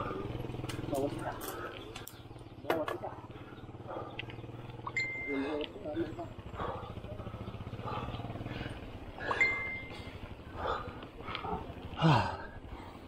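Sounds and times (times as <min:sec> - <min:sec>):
person breathing hard: 0:06.4 - 0:13.0
person groaning: 0:12.0 - 0:12.5.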